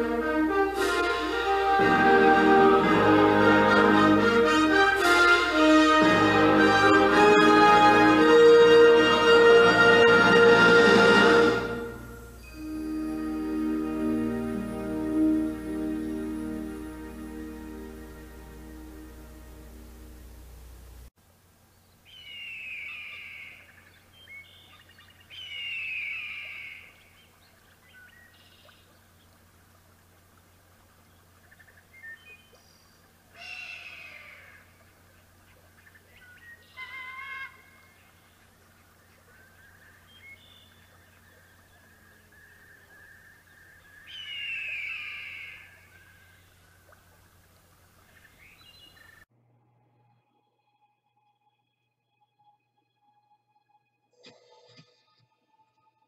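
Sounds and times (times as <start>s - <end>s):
low hum: 0.0s - 21.8s
bird chirps: 21.8s - 29.2s, 35.4s - 46.8s
bird of prey screaming: 33.4s - 34.6s, 36.8s - 38.0s.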